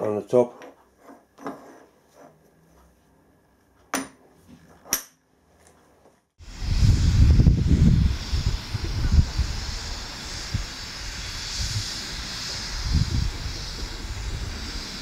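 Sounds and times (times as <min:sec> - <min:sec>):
steam locomotive hiss and rumble: 0:06.4 - 0:15.0.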